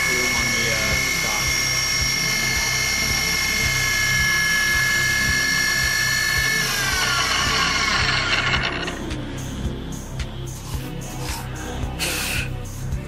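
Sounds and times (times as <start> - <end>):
milling machine spindle whine: 0.0 - 9.2.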